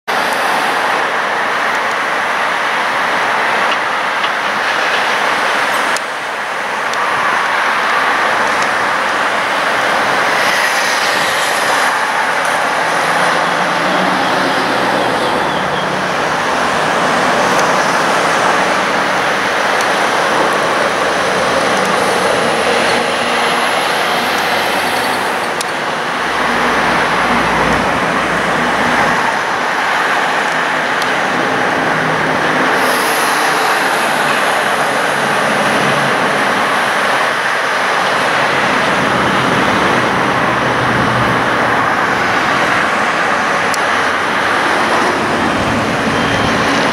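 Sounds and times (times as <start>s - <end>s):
road traffic passing: 0.1s - 46.9s
heavy machinery working: 8.4s - 41.4s.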